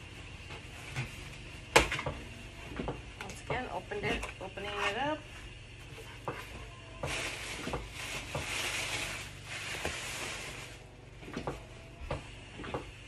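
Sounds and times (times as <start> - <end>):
plastic packaging crinkling: 7.1 - 10.8.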